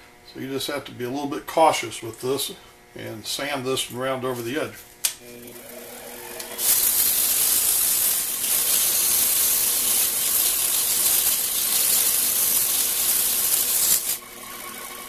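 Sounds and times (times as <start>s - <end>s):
wood lathe running: 5.5s - 15.0s
sandpaper hissing on wood: 6.6s - 14.2s.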